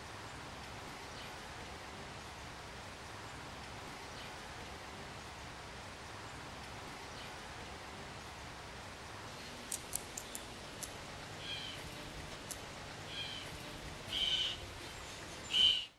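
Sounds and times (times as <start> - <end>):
faint outdoor hiss: 0.0 - 15.9
blue jay calls: 11.3 - 12.0, 13.0 - 15.9.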